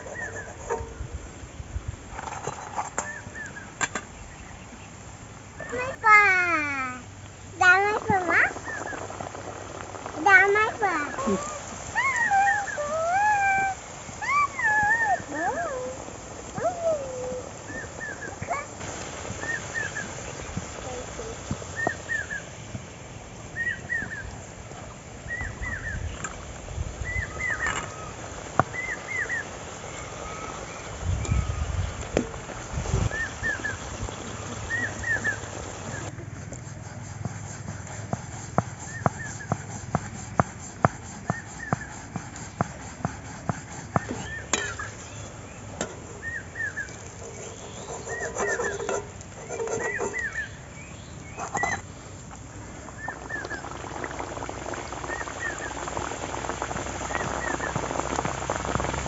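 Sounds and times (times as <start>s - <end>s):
bird chirping: 44.0s - 51.8s.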